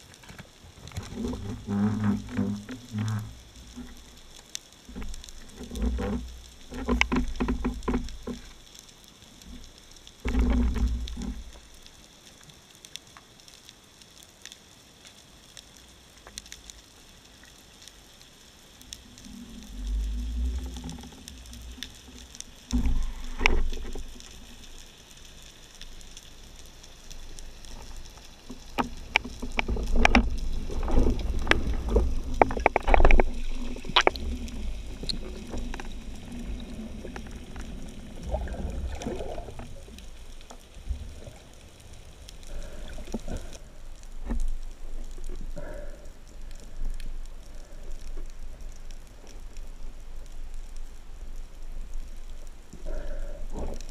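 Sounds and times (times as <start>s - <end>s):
underwater rushing water: 0.0s - 12.8s, 15.8s - 53.9s
faint steady crackle: 0.0s - 53.9s.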